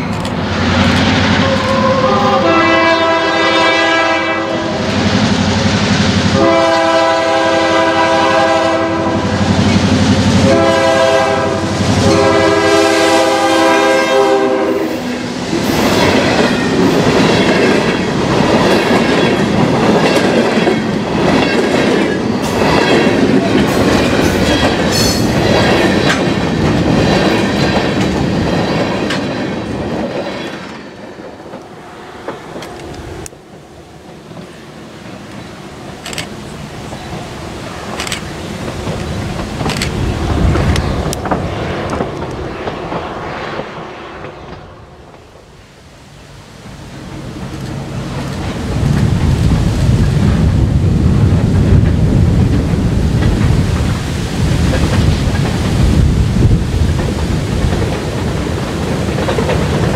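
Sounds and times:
locomotive air horn: 1.3s - 4.9s, 6.4s - 9.4s, 10.4s - 15.2s
train wheels clattering over rails: 15.5s - 37.2s, 37.8s - 44.6s, 46.6s - 59.9s.

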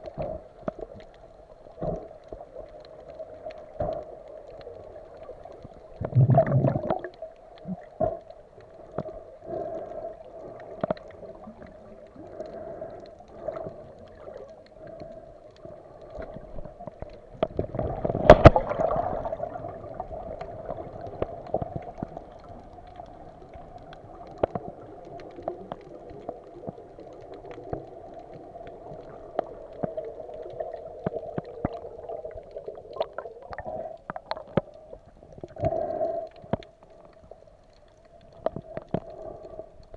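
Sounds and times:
muffled underwater gurgling: 5.8s - 37.0s.

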